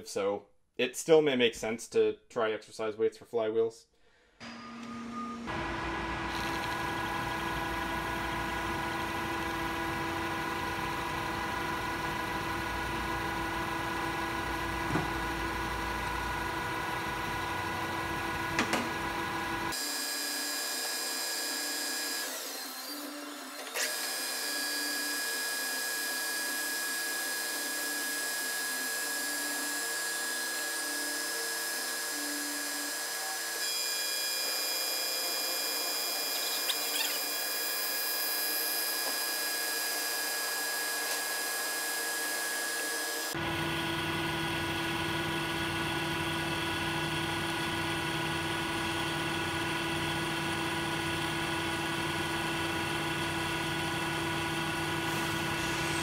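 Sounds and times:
metal lathe whine: 4.4s - 56.0s
cutting noise: 35.2s - 39.2s.

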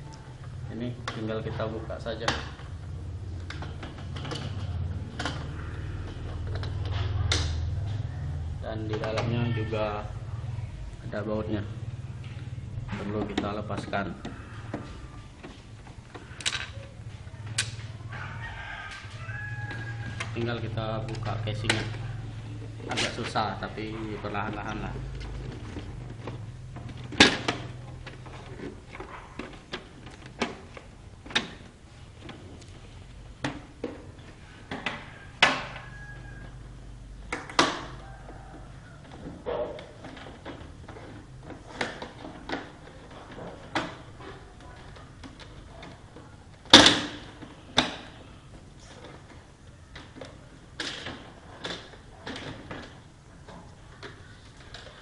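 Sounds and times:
plastic clicks and scrapes: 37.2s - 55.0s.

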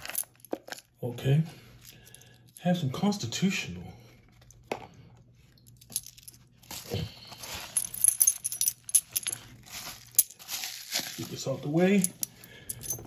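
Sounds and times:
coins clinking in hands: 7.2s - 10.4s, 11.9s - 13.0s.

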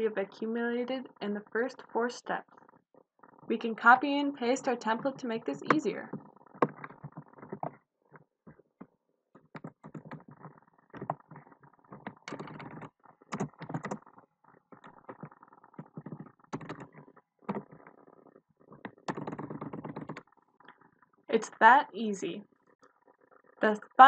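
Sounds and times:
typing on computer keyboard: 9.5s - 11.4s, 12.0s - 14.0s, 14.7s - 17.8s, 18.8s - 20.3s.

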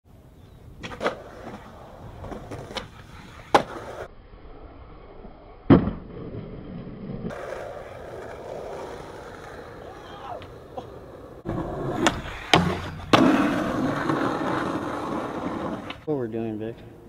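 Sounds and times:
skateboard wheels rolling on concrete: 0.1s - 17.0s
skateboard clacks: 0.8s - 4.0s, 7.3s - 16.0s
skateboard landing thud: 0.8s - 4.1s, 5.6s - 6.4s, 11.4s - 16.0s.

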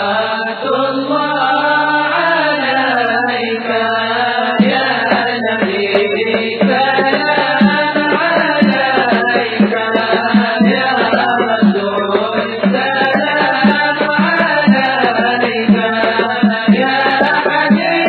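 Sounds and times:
voices chanting devotional melody: 0.0s - 18.0s
drum beat: 4.6s - 18.0s.

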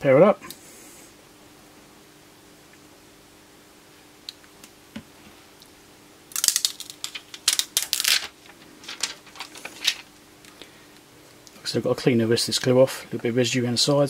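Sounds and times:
plastic film peeling and crinkling: 6.3s - 10.1s.

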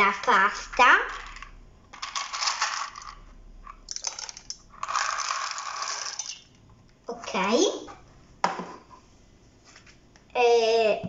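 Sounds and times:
dry pasta rattling in plastic tub: 2.0s - 3.2s, 3.9s - 6.4s.

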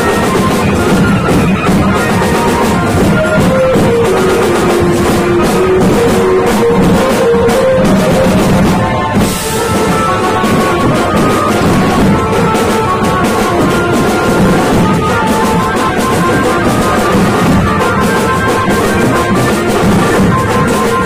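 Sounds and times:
drum kit toms and cymbals: 0.0s - 21.0s
marching drums beating: 0.0s - 21.0s
melody line: 0.0s - 21.0s
cymbal crash: 3.8s - 12.8s.

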